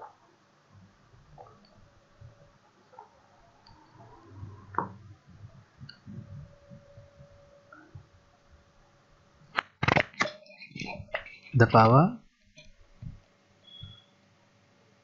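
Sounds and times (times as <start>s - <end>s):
low room rumble: 0.0s - 9.5s
faint steady hum: 0.0s - 15.0s
sharp click: 9.5s - 10.4s.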